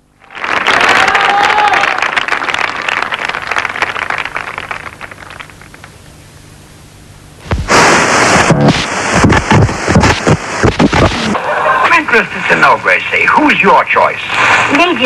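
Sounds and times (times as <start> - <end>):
applause: 0.0 - 6.0, 14.6 - 15.0
radio static hiss and crackle: 2.6 - 15.0.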